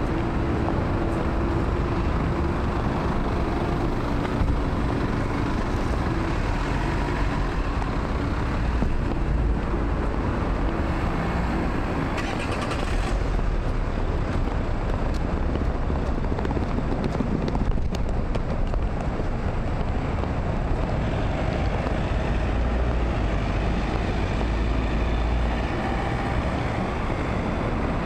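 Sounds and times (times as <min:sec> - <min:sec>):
street traffic: 0:00.0 - 0:28.0.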